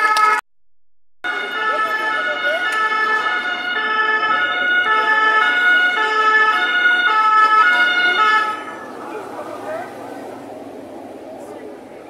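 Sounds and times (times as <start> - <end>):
two-tone emergency siren: 0.0 - 0.4, 1.2 - 8.9.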